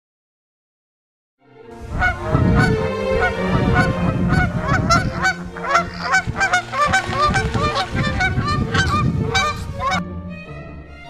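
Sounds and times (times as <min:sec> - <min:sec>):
geese honking: 0:01.8 - 0:10.0.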